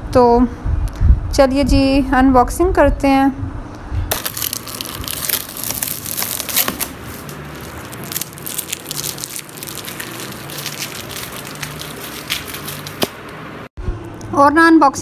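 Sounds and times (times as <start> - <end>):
cardboard flaps crinkling: 4.1 - 13.4
packing tape ripping: 4.1 - 13.4.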